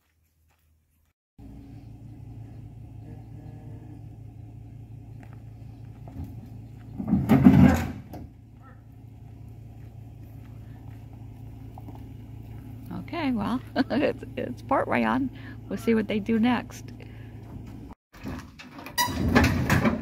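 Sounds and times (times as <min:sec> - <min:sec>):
vehicle engine idling: 0:01.4 - 0:07.1, 0:08.0 - 0:18.0.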